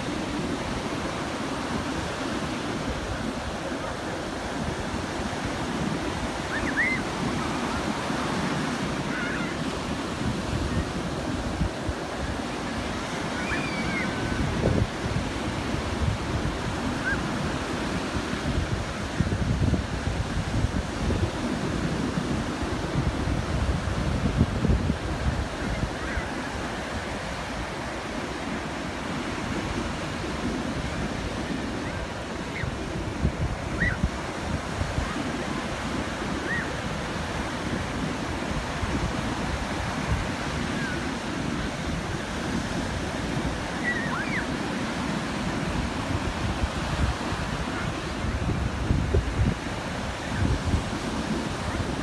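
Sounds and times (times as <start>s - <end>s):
waves crashing and foaming: 0.0s - 52.0s.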